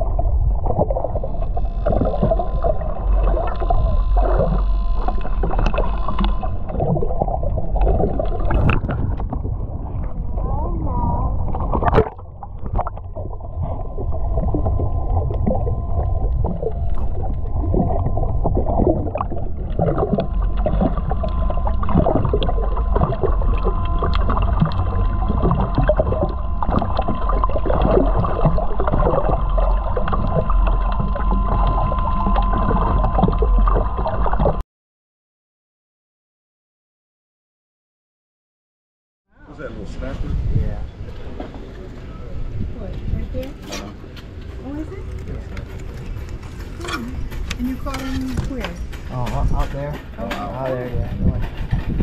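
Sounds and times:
rushing water with knocks: 0.0s - 9.6s, 11.5s - 13.4s, 14.4s - 34.6s, 42.8s - 52.0s
motorboat engine drone: 0.0s - 34.6s, 40.8s - 52.0s
steady whine: 0.0s - 34.6s, 39.4s - 52.0s.

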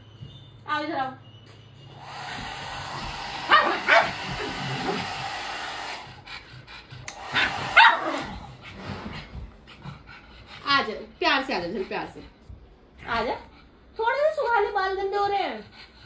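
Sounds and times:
hair dryer blowing: 1.9s - 6.3s, 7.0s - 8.9s
dog barking: 3.5s - 5.0s, 7.3s - 8.4s.

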